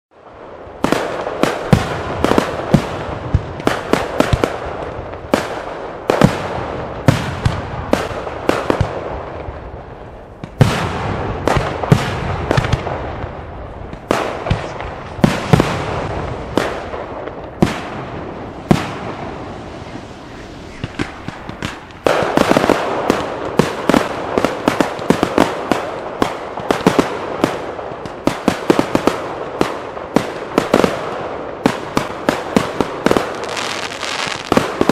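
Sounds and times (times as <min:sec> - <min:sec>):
firework crackling: 0:00.2 - 0:34.9
firework shells bursting: 0:16.3 - 0:25.1.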